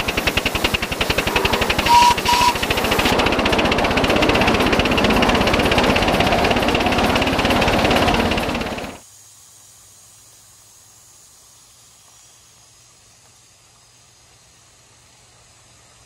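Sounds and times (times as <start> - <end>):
low hum: 0.0 - 9.0
steam locomotive clatter: 0.0 - 9.0
faint steady hiss: 9.0 - 16.0.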